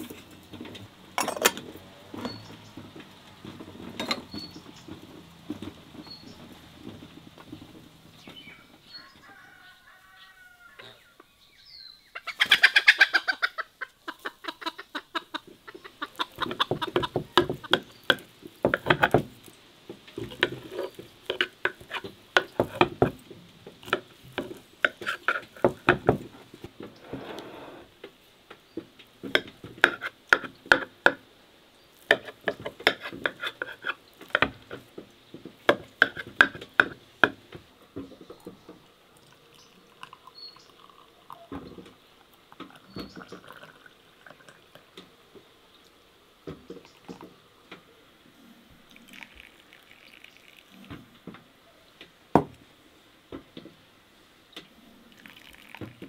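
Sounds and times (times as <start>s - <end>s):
chicken squawk: 9.0s - 11.2s, 12.1s - 16.8s
chickens clucking: 12.0s - 19.1s.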